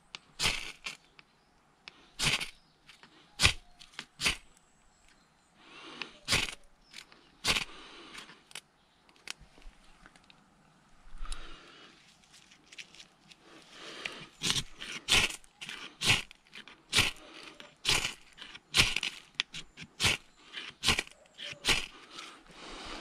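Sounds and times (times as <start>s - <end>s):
knife scraping ferro rod: 0.1s - 1.2s, 1.9s - 4.4s, 6.0s - 8.6s, 14.0s - 22.4s.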